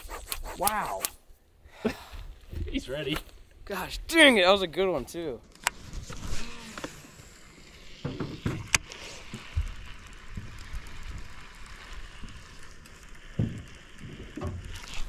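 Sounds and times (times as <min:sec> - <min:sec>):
sharp reel click: 0:00.0 - 0:01.2.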